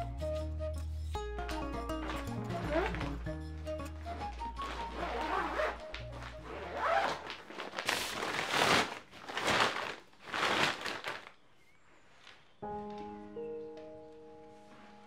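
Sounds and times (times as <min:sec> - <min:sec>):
piano music: 0:00.0 - 0:06.5, 0:12.6 - 0:15.0
background music: 0:00.0 - 0:07.0, 0:12.6 - 0:15.0
plastic bag crinkling and rustling: 0:04.1 - 0:12.5.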